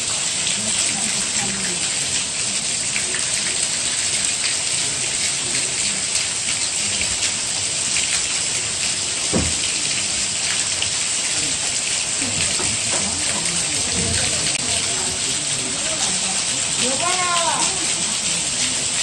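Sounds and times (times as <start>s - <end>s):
heavy rain hissing: 0.0s - 19.0s
faint murmuring voices: 0.4s - 19.0s
dull thump: 9.3s - 9.8s.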